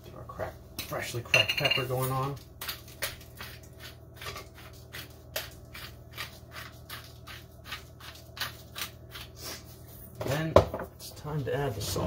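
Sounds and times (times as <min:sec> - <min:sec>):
pepper grinder crunching: 0:02.0 - 0:09.4.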